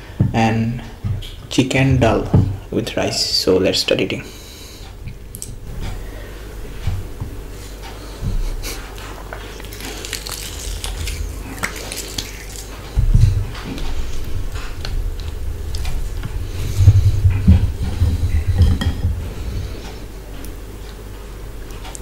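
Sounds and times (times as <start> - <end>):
low thumps and handling noises: 0.0 - 3.1, 4.8 - 9.7, 12.6 - 22.0
hands mixing rice: 7.5 - 20.0
fingers breaking chillies: 9.6 - 12.7.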